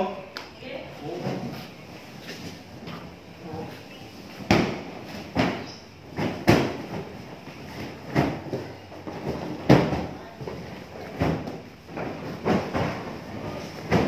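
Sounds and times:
bales thudding: 0:04.4 - 0:14.0.

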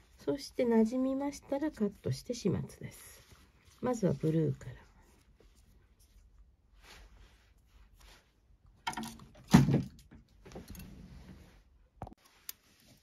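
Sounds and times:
cord collar rustling in fingers: 0:02.8 - 0:08.7.

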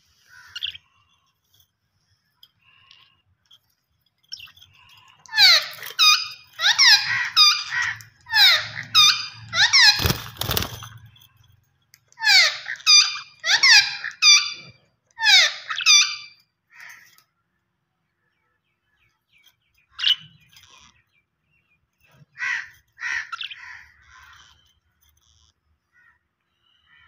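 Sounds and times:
budgerigars calling: 0:00.3 - 0:00.8, 0:05.3 - 0:10.8, 0:12.2 - 0:16.3.

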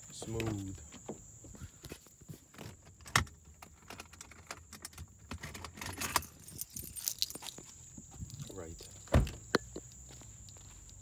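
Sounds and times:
keys jangling: 0:05.5 - 0:07.6
quick key rattles: 0:05.5 - 0:07.6.

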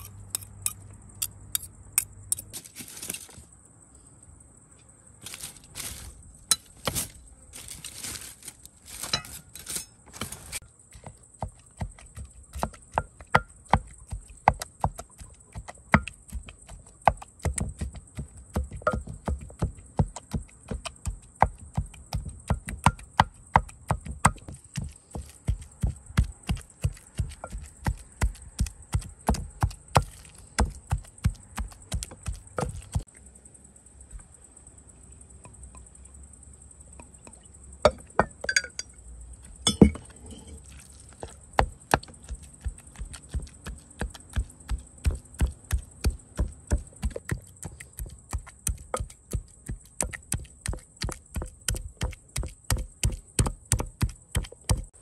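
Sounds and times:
clinks: 0:37.2 - 0:39.0, 0:39.6 - 0:40.6.

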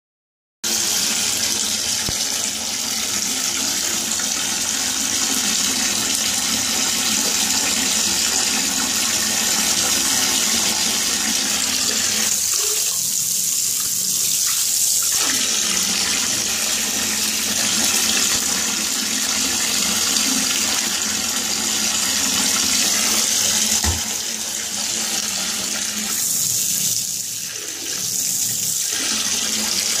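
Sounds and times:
tap water splashing into tub: 0:00.8 - 0:13.1, 0:22.2 - 0:24.4.

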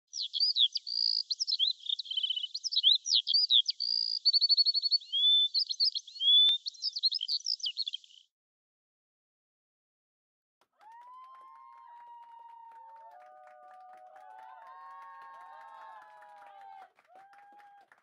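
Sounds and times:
bird chirping and trilling: 0:00.0 - 0:08.3.

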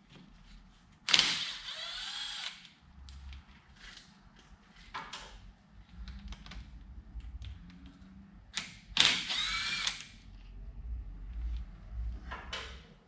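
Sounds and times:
power drill motor running: 0:01.4 - 0:02.6, 0:09.2 - 0:10.0.

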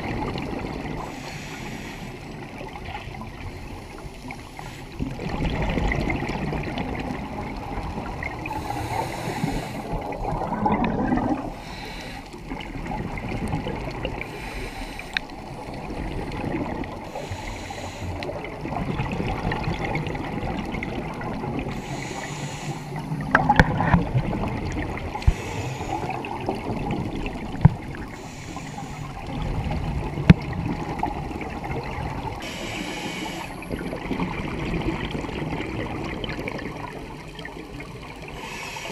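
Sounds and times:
underwater air bubbling: 0:00.0 - 0:38.9.

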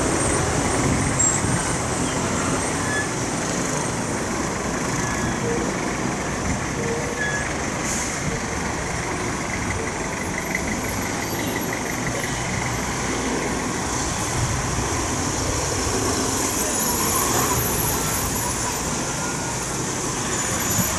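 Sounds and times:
traffic noise: 0:00.0 - 0:20.9
vehicle engine: 0:00.0 - 0:20.9.

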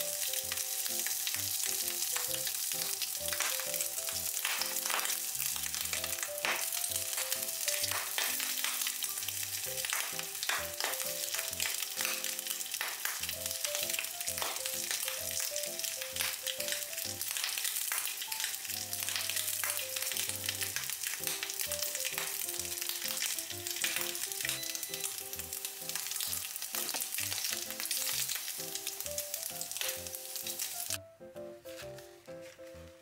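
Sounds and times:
ham sizzling and popping in pan: 0:00.0 - 0:33.0.

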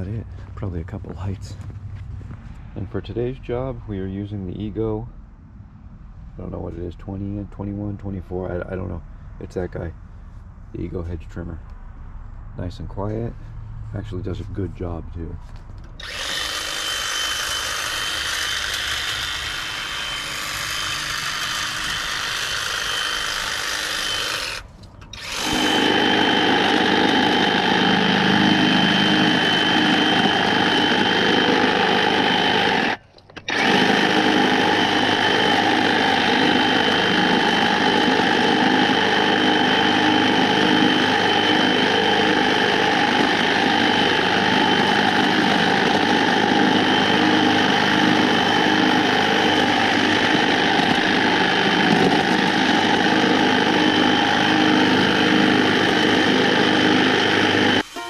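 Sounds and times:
hedge trimmer whining: 0:16.0 - 0:58.0.

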